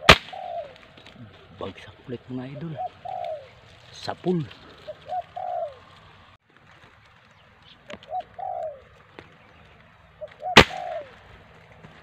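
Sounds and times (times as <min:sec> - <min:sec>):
air rifle shot: 0:00.0 - 0:00.6, 0:10.6 - 0:11.0
dove cooing: 0:00.0 - 0:01.5, 0:02.4 - 0:03.9, 0:04.5 - 0:06.1, 0:07.8 - 0:11.4.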